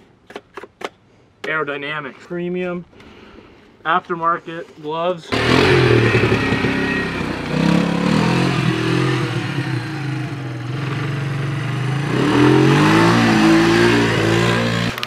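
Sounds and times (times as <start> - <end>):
atv engine revving: 5.3 - 15.0.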